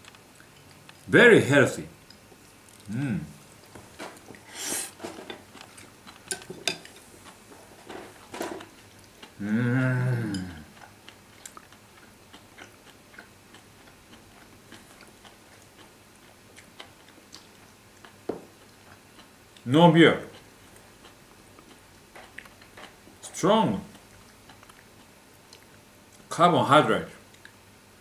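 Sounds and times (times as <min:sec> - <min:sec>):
man chewing: 0:00.0 - 0:01.1, 0:02.0 - 0:23.2, 0:23.9 - 0:26.3, 0:27.3 - 0:27.6
man's drawn-out wordless vocal sound: 0:09.4 - 0:10.7.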